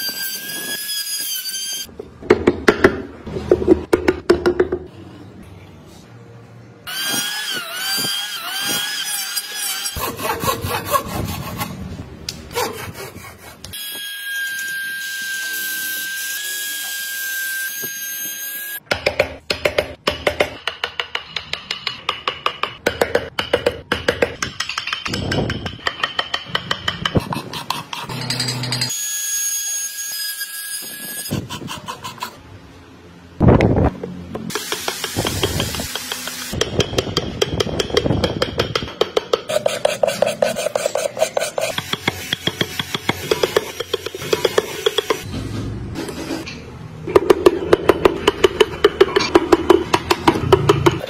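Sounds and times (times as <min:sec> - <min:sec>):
scraping strokes on wood: 0:39.4 - 0:45.3.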